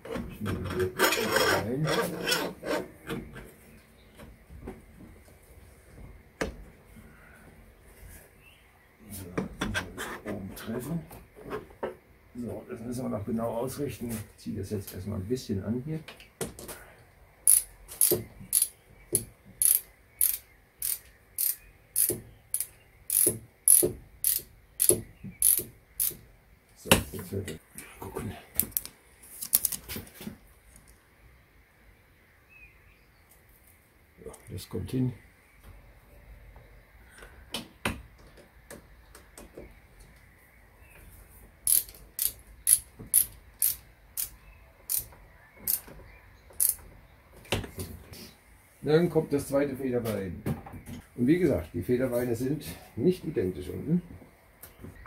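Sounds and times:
ratchet wrench clicking: 17.5 - 18.7, 19.6 - 26.2, 41.6 - 44.3, 44.9 - 45.1, 46.6 - 46.8.

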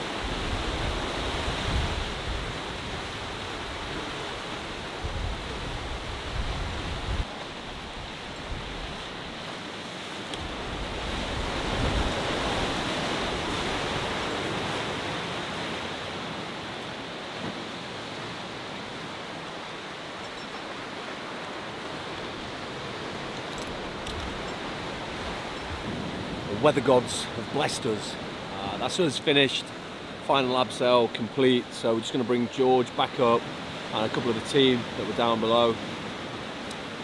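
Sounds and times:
sea waves washing against shore: 0.0 - 37.0
wind buffeting microphone: 0.2 - 9.3, 10.4 - 15.1.

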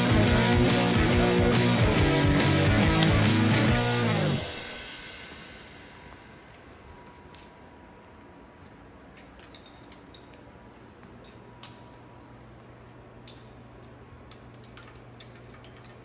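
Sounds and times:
metallic clicks of tools and parts: 9.1 - 12.6, 13.2 - 16.0.

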